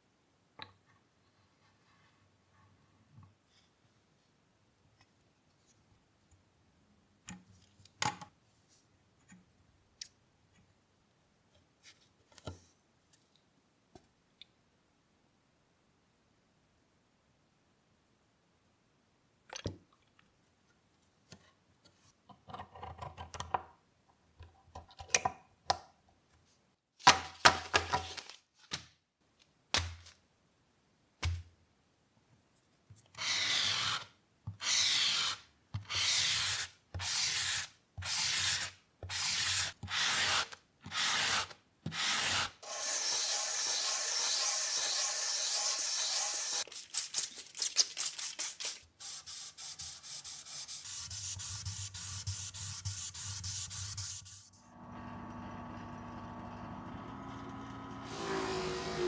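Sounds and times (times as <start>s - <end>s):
wet sanding: 48.0s - 54.5s
hand sanding wood: 48.5s - 54.5s.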